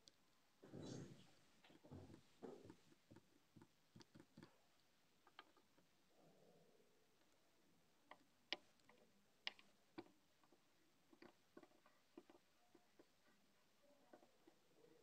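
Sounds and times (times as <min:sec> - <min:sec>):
faint clicks and taps: 0:00.0 - 0:06.0, 0:08.0 - 0:15.0.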